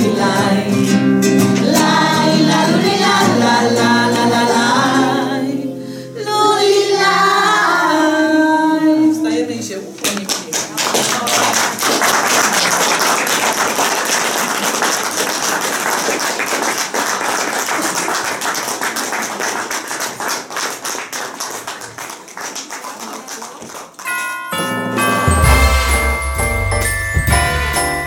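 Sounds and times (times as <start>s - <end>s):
audience applauding: 10.1s - 24.2s.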